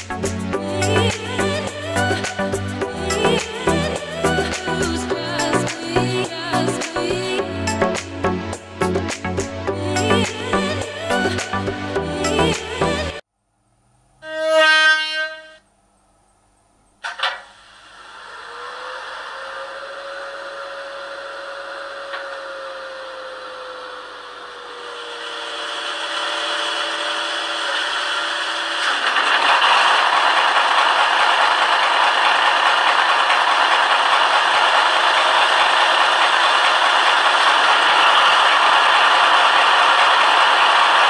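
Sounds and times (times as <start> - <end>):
model locomotive engine humming: 17.0 - 41.0
loud steady rattle: 22.0 - 41.0.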